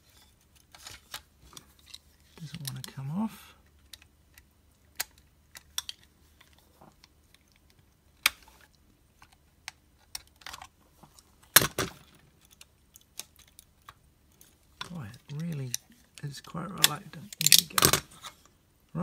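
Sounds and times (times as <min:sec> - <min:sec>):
plastic parts clacking: 0:00.0 - 0:18.5
model car parts clicking: 0:03.6 - 0:18.4.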